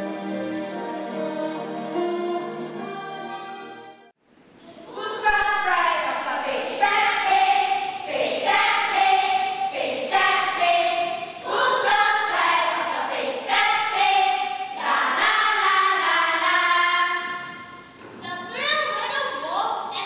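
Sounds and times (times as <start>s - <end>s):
children singing together: 4.7s - 18.0s.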